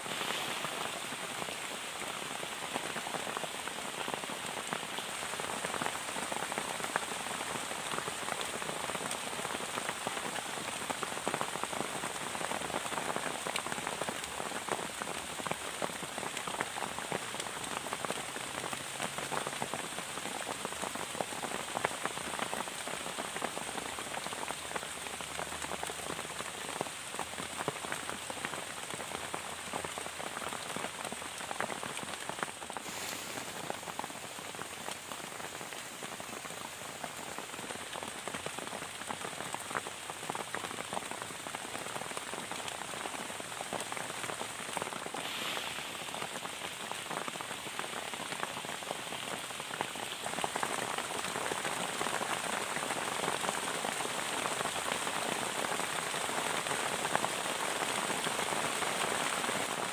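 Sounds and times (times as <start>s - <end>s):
heavy rain on plastic sheet: 0.0s - 59.9s.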